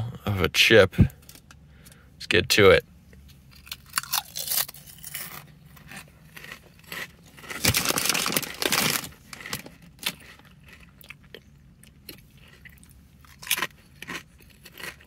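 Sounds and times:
chip bag crinkling: 3.6s - 11.0s.

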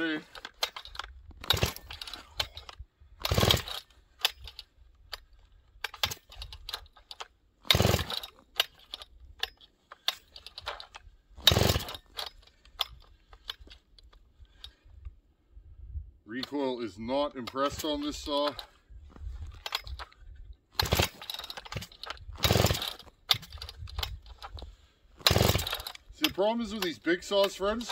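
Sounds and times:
handling clicks and knocks: 0.0s - 14.8s, 17.4s - 27.9s
chainsaw recoil rope rasp: 1.4s - 2.6s, 3.2s - 4.5s, 7.6s - 9.0s, 11.4s - 12.2s, 20.8s - 23.7s, 25.2s - 27.9s.

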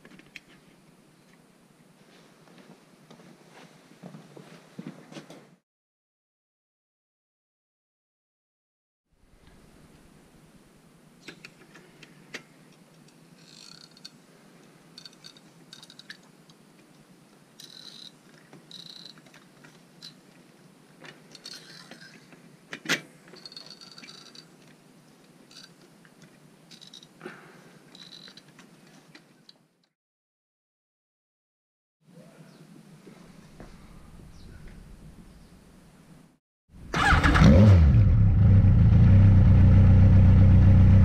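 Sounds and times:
rivet gun squeaks and clicks: 17.6s - 19.3s, 28.0s - 28.5s.

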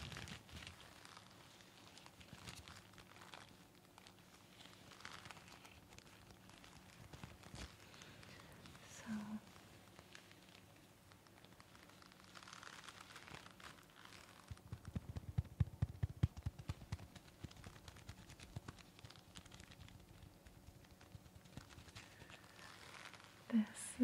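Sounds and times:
surgical mask crinkling: 0.0s - 24.0s
fingertip taps and scratches: 14.5s - 21.8s.

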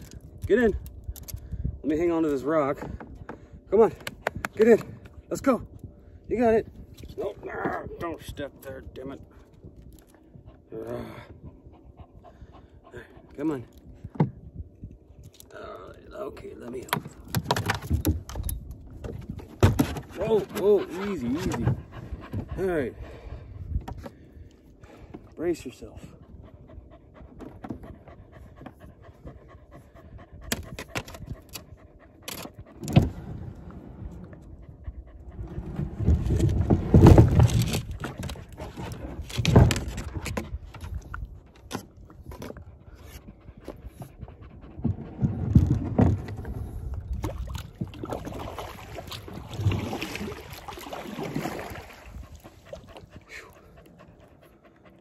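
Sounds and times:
thumps and scrapes: 16.8s - 22.6s, 35.3s - 46.8s
dog panting: 20.4s - 23.6s, 25.6s - 32.9s, 34.4s - 35.6s, 42.7s - 45.3s, 52.1s - 55.0s.

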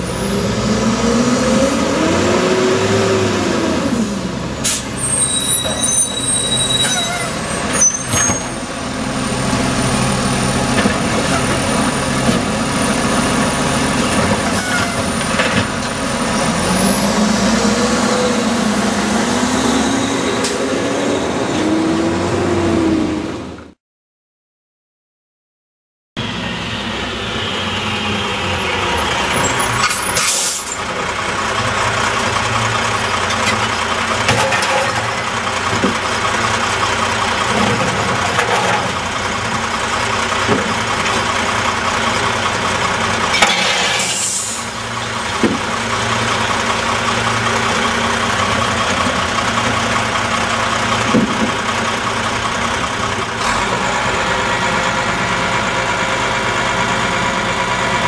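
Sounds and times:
air brakes hissing: 4.6s - 7.3s, 29.8s - 30.8s, 43.4s - 44.7s
diesel engine idling: 30.8s - 34.3s, 35.1s - 38.3s, 38.9s - 43.4s, 44.5s - 58.0s.

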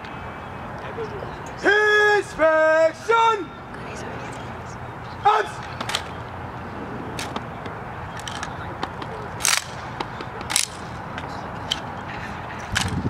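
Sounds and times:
steady background noise: 0.0s - 13.0s
rifles clacking in unison: 8.1s - 11.0s, 12.6s - 13.0s
small rifle clicks: 9.4s - 9.8s.

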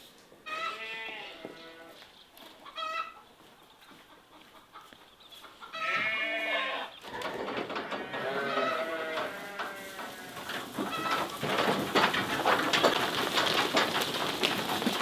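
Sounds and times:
sheep bleating: 0.5s - 2.0s, 5.8s - 6.9s, 7.8s - 10.5s.

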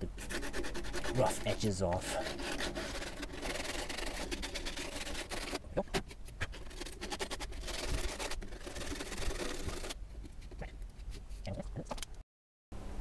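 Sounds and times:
sandpaper rasping on plastic pipe: 0.0s - 5.6s, 6.4s - 10.0s.

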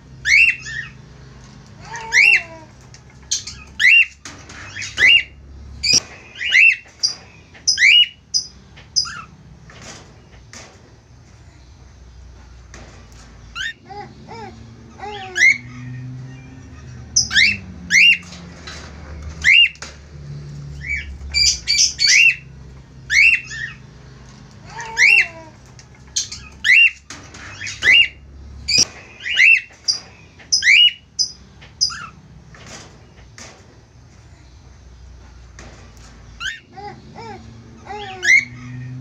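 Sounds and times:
cockatiels squawking: 0.3s - 1.0s, 1.8s - 2.7s, 13.5s - 15.8s, 24.6s - 25.5s, 26.2s - 32.2s, 36.4s - 38.8s.

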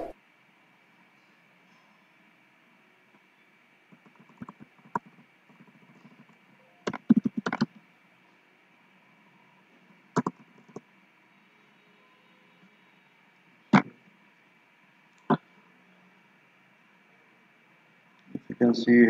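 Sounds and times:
laptop keyboard typing: 3.9s - 7.8s, 10.2s - 10.9s, 13.7s - 14.0s.

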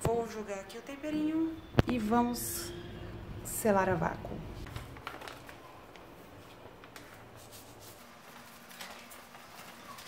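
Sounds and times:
plastic bag rustling: 4.6s - 10.0s.

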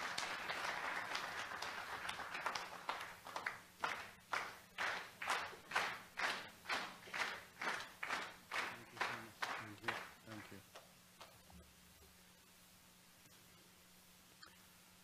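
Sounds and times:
audience applause: 0.0s - 10.6s
rhythmic clapping: 0.0s - 11.4s.

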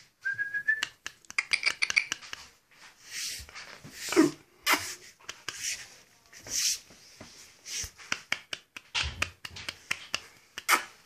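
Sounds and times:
dog claws clicking on floor: 0.8s - 2.6s, 7.2s - 11.0s.

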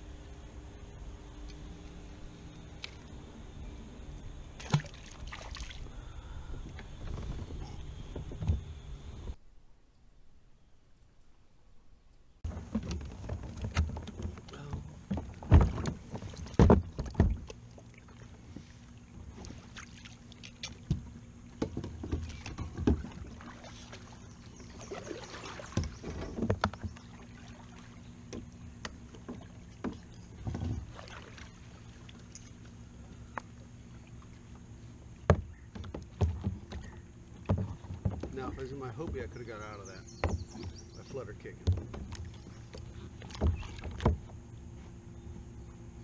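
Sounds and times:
paddle splashing water: 4.5s - 9.4s, 12.5s - 45.8s
kayak knocks and thumps: 4.6s - 5.7s, 6.5s - 9.4s, 12.4s - 31.8s, 35.0s - 45.5s.

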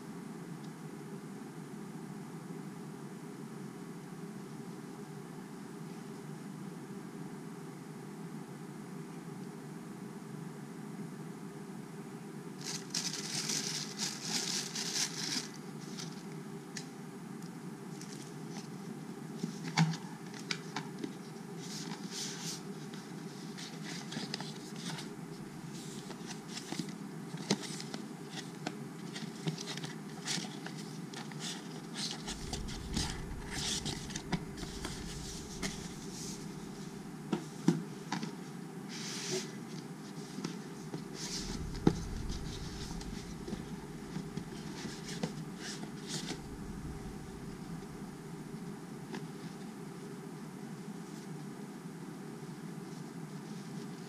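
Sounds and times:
crinkling plastic wrap: 12.6s - 16.2s
low background hum: 31.8s - 38.8s, 39.7s - 51.2s.

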